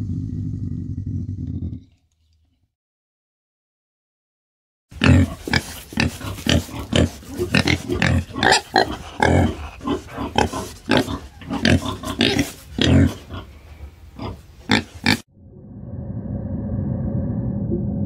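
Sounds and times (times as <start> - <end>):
peccary grunting: 5.0 - 13.5.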